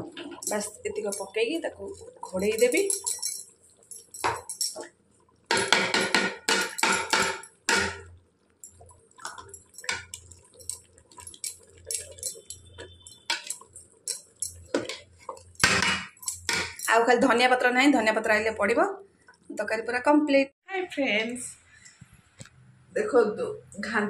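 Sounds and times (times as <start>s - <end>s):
metal ladle scraping a pot: 9.2s - 16.8s.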